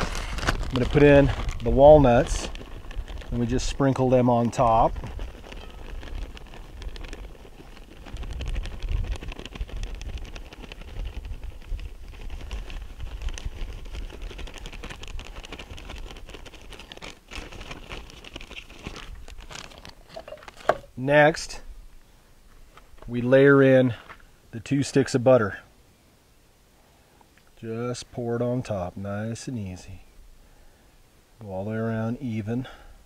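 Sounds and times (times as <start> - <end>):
nut pieces pattering: 0.0 - 20.9.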